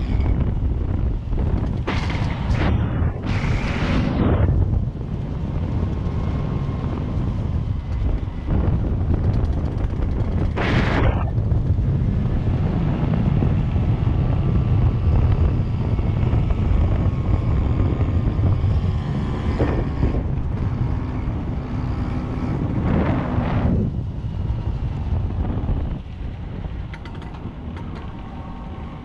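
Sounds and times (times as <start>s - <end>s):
wind rumble on microphone: 0.0s - 29.0s
scooter engine running: 5.1s - 10.6s.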